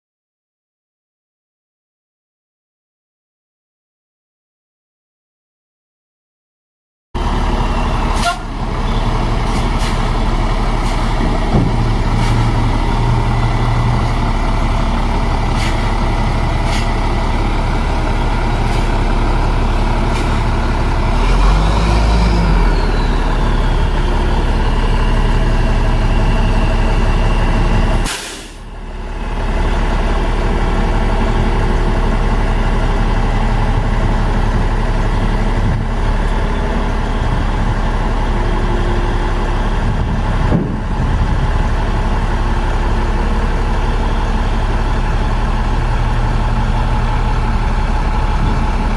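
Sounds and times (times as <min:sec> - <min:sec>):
diesel truck engine running: 0:07.2 - 0:48.9.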